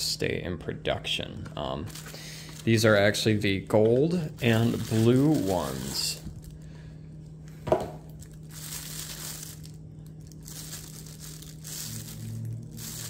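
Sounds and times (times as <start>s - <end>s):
plastic bag crinkling: 1.8s - 6.7s, 8.0s - 13.0s.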